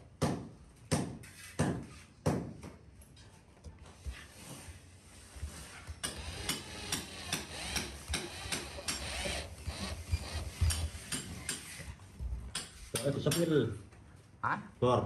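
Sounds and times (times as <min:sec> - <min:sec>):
cordless drill driving screws: 0:06.0 - 0:11.8.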